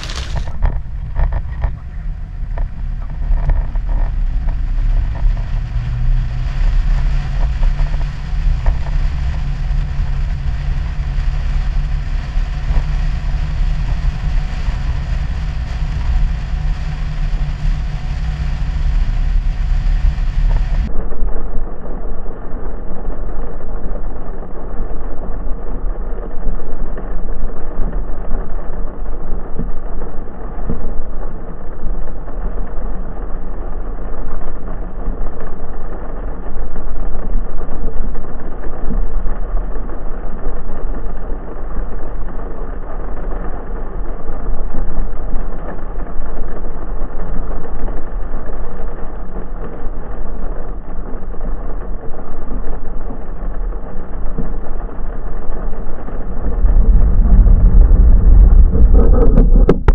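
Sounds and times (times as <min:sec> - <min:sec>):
heavy rain rushing: 0:00.0 - 0:20.9, 0:38.5 - 0:59.9
deep engine rumble: 0:00.0 - 0:21.9, 0:46.6 - 0:59.9.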